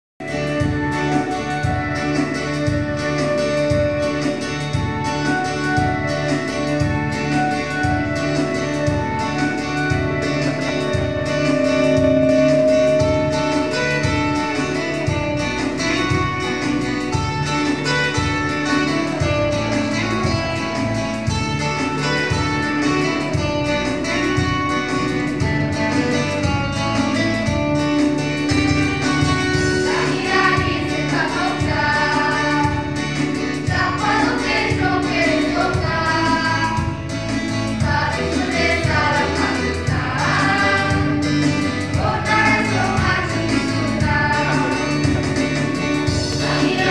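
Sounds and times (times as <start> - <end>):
band accompaniment with steady beat: 0.2 - 46.9
women singing gospel song: 29.4 - 37.1, 37.7 - 46.9.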